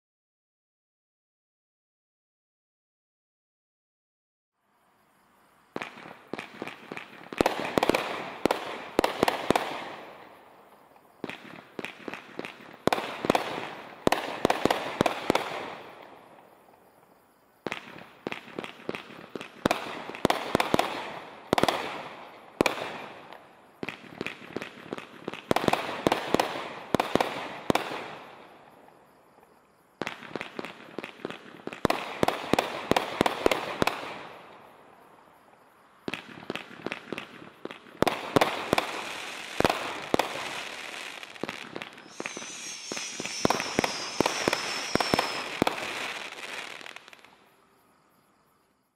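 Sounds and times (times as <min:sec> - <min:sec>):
firework cake firing: 0:36.2 - 0:47.4.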